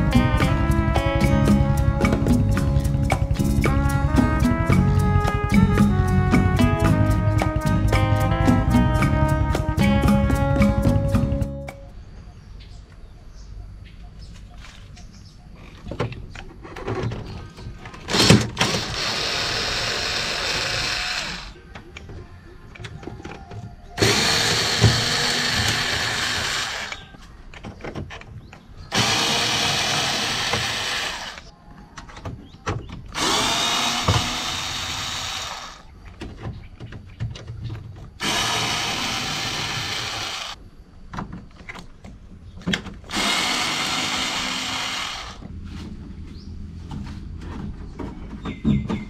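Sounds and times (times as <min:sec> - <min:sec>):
cordless drill driving screws: 0:18.1 - 0:21.6, 0:24.0 - 0:27.0, 0:28.9 - 0:31.5, 0:33.1 - 0:35.9, 0:38.2 - 0:40.6, 0:43.1 - 0:45.4.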